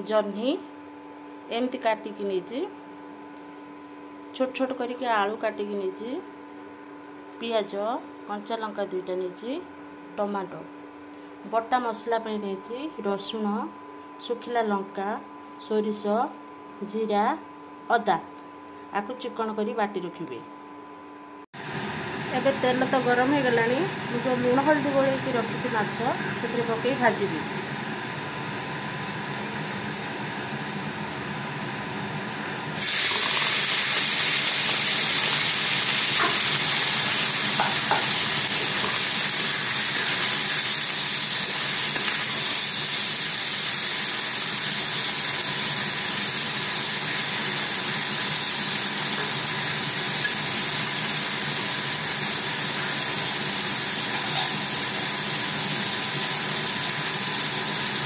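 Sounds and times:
prawns sizzling in hot oil: 0:32.8 - 0:58.0.

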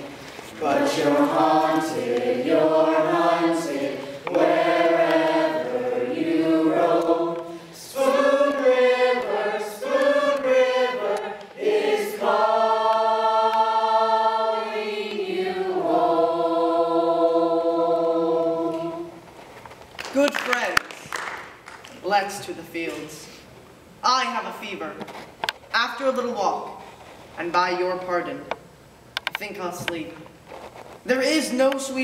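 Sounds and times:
mixed choir singing: 0:00.0 - 0:19.2.

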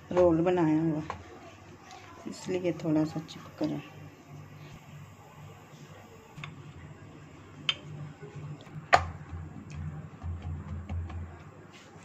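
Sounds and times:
low steady hum: 0:02.4 - 0:12.0.

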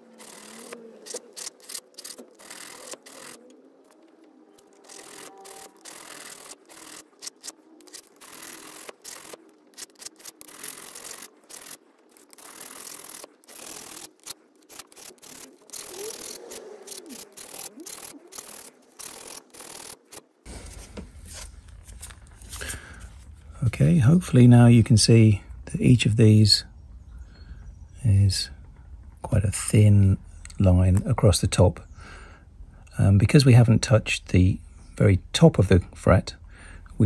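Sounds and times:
file rasping on metal frets: 0:00.0 - 0:03.4, 0:04.6 - 0:20.2.

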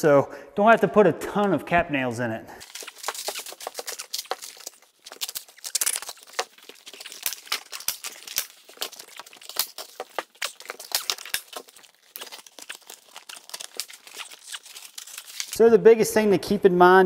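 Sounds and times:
heavy paper crinkling and crackling: 0:02.6 - 0:15.6.

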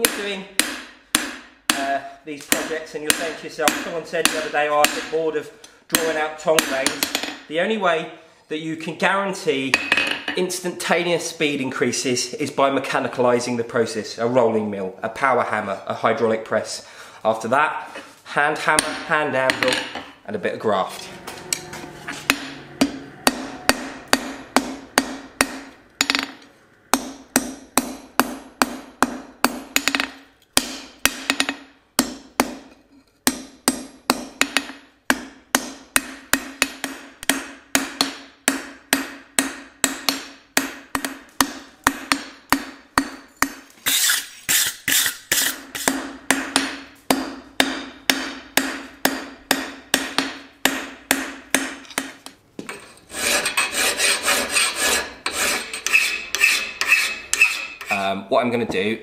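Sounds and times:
hammer striking steel on anvil: 0:00.0 - 0:01.9, 0:21.2 - 0:32.6, 0:45.3 - 0:52.2
anvil ringing: 0:21.2 - 0:28.0.

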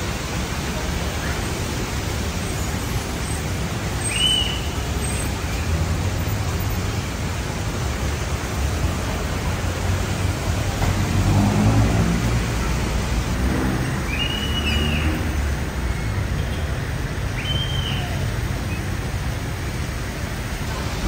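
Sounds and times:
steady rain falling: 0:00.0 - 0:21.0
traffic on wet road: 0:00.0 - 0:21.0
passing vehicle engine: 0:09.7 - 0:16.2.

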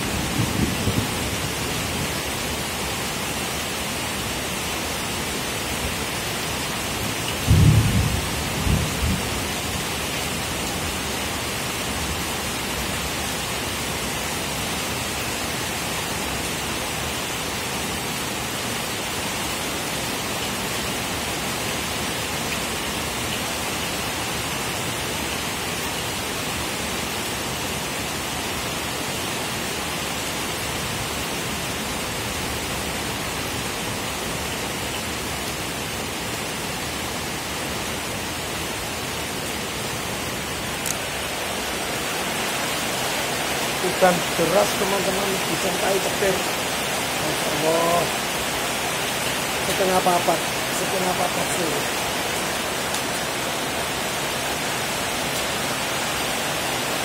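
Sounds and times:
heavy rain: 0:00.0 - 0:57.0
rumble of thunder: 0:07.4 - 0:09.3.

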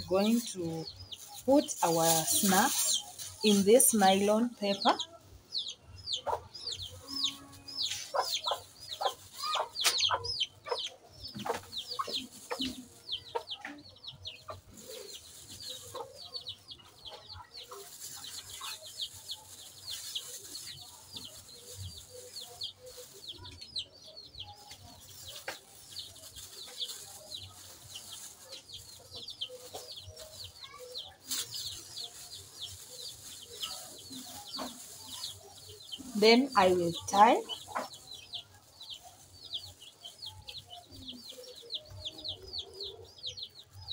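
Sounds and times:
plastic bag crinkling: 0:00.0 - 0:04.7, 0:17.7 - 0:23.2, 0:24.8 - 0:37.4
chickens peeping and clucking: 0:00.0 - 0:43.9.

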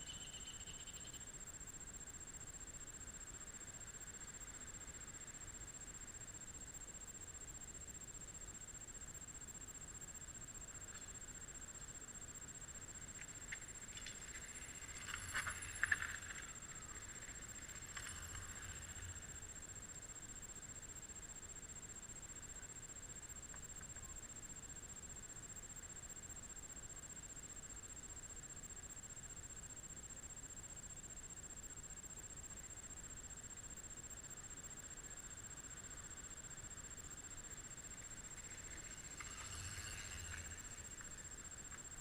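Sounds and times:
thin steady high whine: 0:00.0 - 0:42.0
bike rattles and clicks: 0:13.5 - 0:18.8.

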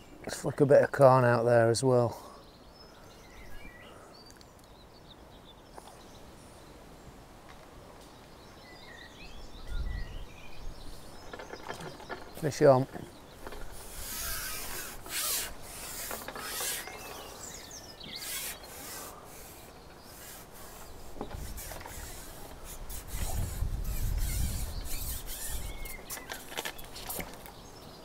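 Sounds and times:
fishing pole rubbing and sliding: 0:13.4 - 0:17.6, 0:18.2 - 0:27.4.

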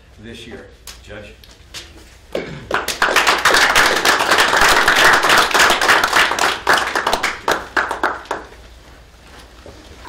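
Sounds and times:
audience applauding: 0:02.7 - 0:08.5.

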